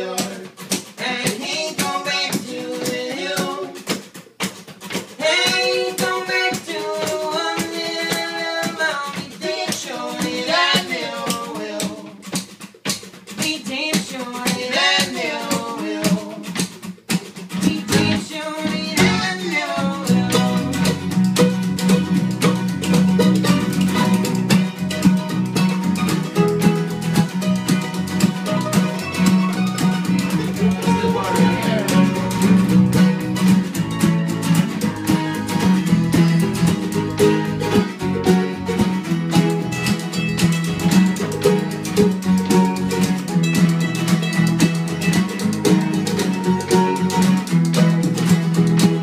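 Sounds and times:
person singing: 0:00.0 - 0:03.9, 0:05.2 - 0:12.3, 0:13.4 - 0:16.6, 0:17.6 - 0:21.1, 0:30.6 - 0:32.6
acoustic guitars strumming: 0:00.0 - 0:49.0
electric guitar: 0:00.0 - 0:49.0.

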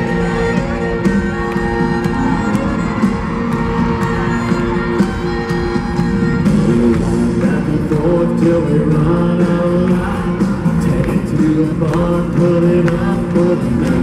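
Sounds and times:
live country band music: 0:00.0 - 0:14.0
man singing lead: 0:06.4 - 0:14.0.

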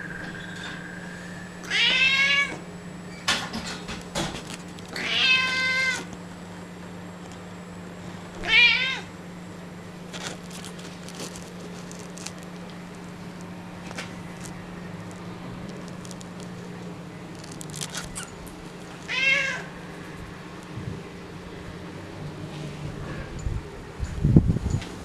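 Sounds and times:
steady low hum: 0:00.0 - 0:25.0
cat meowing: 0:01.6 - 0:02.6, 0:05.0 - 0:06.1, 0:08.4 - 0:09.1, 0:19.0 - 0:19.8.

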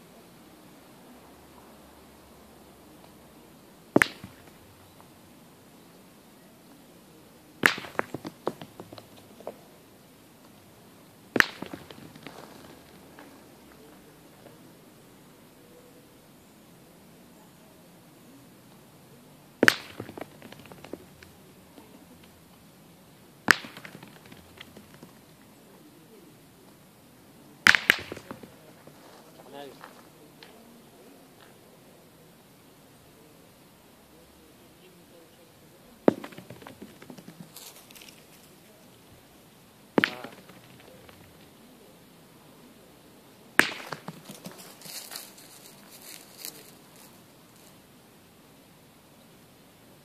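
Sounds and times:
metal ball landing crack: 0:03.9 - 0:04.7, 0:07.6 - 0:09.5, 0:11.3 - 0:13.3, 0:19.6 - 0:21.4, 0:23.4 - 0:25.2, 0:27.6 - 0:28.7, 0:36.0 - 0:37.5, 0:40.0 - 0:41.5, 0:43.6 - 0:44.9
balls clattering on gravel: 0:03.9 - 0:05.1, 0:07.6 - 0:09.7, 0:11.3 - 0:14.6, 0:19.6 - 0:22.6, 0:23.4 - 0:25.6, 0:27.7 - 0:30.7, 0:35.9 - 0:38.7, 0:39.9 - 0:41.7, 0:43.6 - 0:47.2.

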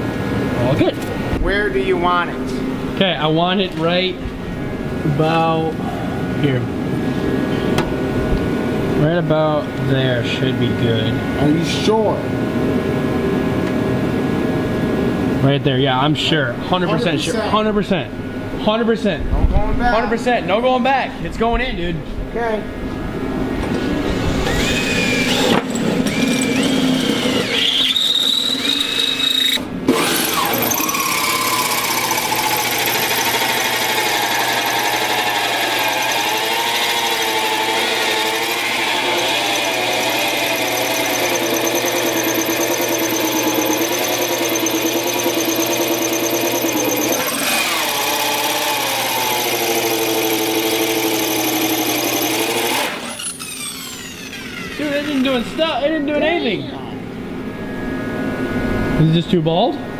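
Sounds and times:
cordless drill spinning: 0:24.1 - 0:55.5
corded drill running with squeal: 0:24.1 - 0:55.7.

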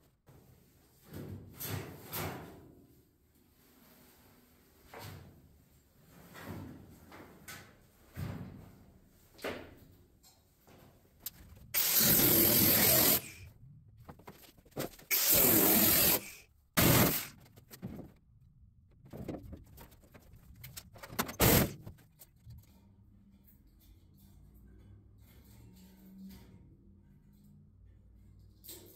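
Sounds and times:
power tool cutting sheet metal: 0:11.8 - 0:13.4, 0:15.1 - 0:17.3, 0:21.4 - 0:21.8
knocks and clatter: 0:17.0 - 0:18.2, 0:18.9 - 0:22.7.

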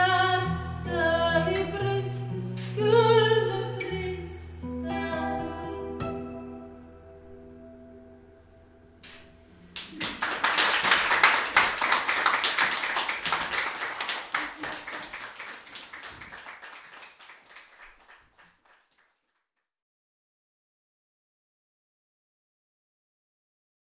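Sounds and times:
audience applauding: 0:09.7 - 0:19.4.

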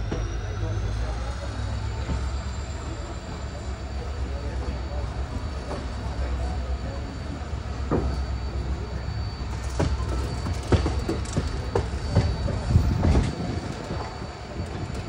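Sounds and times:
faint high whine: 0:00.0 - 0:15.0
train rumble: 0:00.0 - 0:15.0
wheels and couplings clanking: 0:09.5 - 0:15.0.

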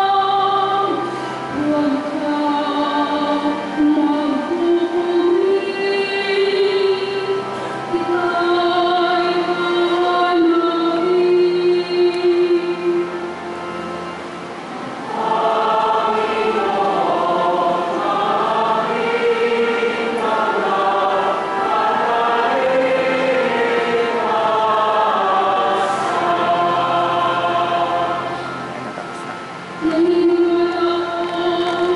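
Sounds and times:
choir singing: 0:00.0 - 0:13.4, 0:15.0 - 0:29.0, 0:29.8 - 0:31.9
chant-like held note: 0:15.0 - 0:31.2.

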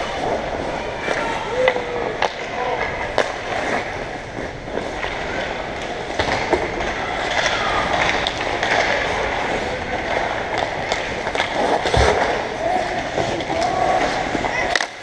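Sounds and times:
skate blades scraping on ice: 0:03.0 - 0:15.0
sticks or puck clicking: 0:04.8 - 0:12.2, 0:13.2 - 0:15.0.

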